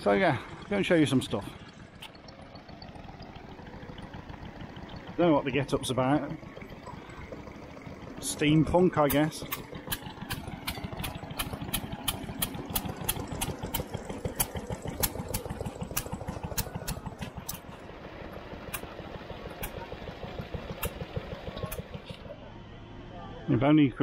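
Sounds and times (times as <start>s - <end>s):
stationary engines chugging: 0.0s - 23.1s
sharp regular clicks: 1.5s - 3.4s, 8.0s - 22.2s.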